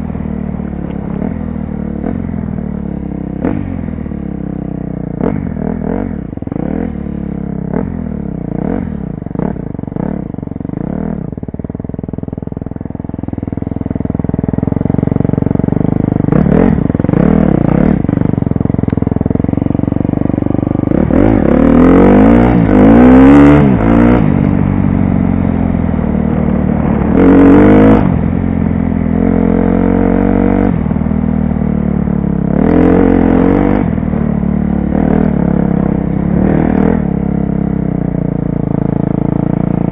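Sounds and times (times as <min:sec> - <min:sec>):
dirt bike engine revving: 0:14.4 - 0:30.8, 0:32.4 - 0:34.0, 0:34.8 - 0:37.6.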